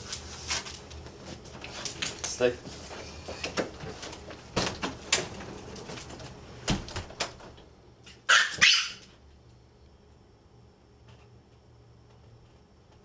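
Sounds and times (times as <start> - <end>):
door shutting: 3.0 - 7.7
dog barking: 8.3 - 9.0.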